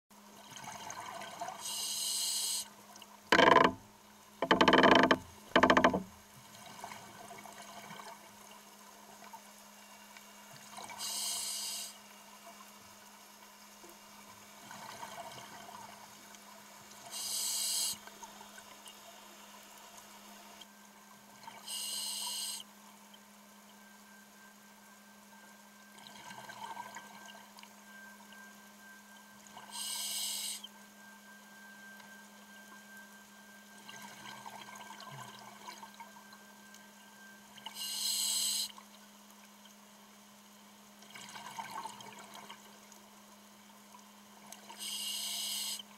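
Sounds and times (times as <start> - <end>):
hissing regulator inhalations: 1.6 - 2.7, 11.0 - 12.0, 17.1 - 18.0, 21.6 - 22.6, 29.7 - 30.7, 37.8 - 38.7, 44.8 - 45.8.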